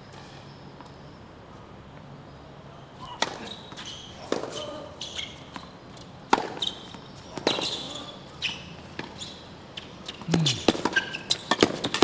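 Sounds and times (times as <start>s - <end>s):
shoe squeaks on court: 3.0s - 5.7s, 6.5s - 11.6s
tennis ball bouncing: 6.3s - 7.8s, 10.1s - 12.0s.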